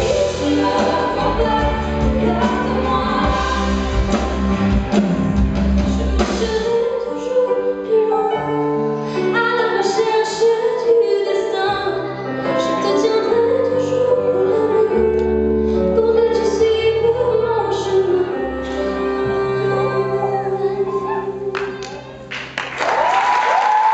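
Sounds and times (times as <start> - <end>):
woman singing pop song: 0.0 - 4.2, 5.8 - 22.0
held bass notes: 0.0 - 6.8
keyboard chords: 0.0 - 22.6.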